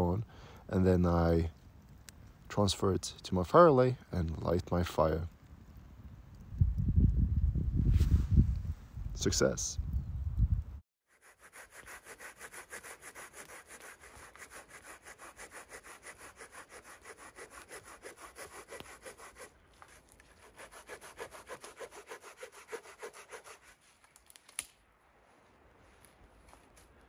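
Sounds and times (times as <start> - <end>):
hand saw cutting wood: 11.1 - 23.9.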